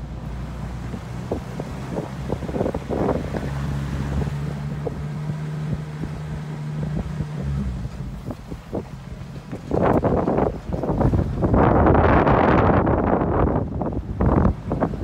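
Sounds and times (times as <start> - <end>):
vehicle engine running at low revs: 0.0 - 15.0
wind buffeting microphone: 0.0 - 15.0
knocks and rattles from bumps: 6.8 - 11.5.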